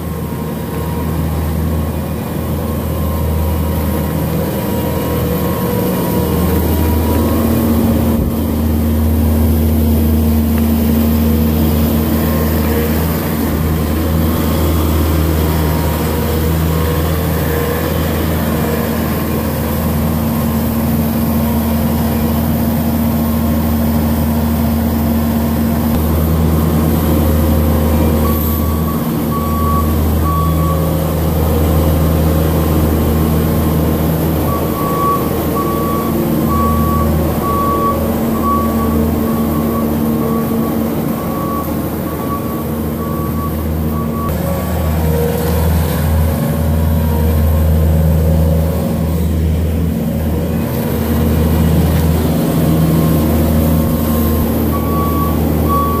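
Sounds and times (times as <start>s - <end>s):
diesel engine running: 0.0s - 56.0s
backup alarm beeping: 26.0s - 32.0s, 34.0s - 44.4s, 53.0s - 56.0s.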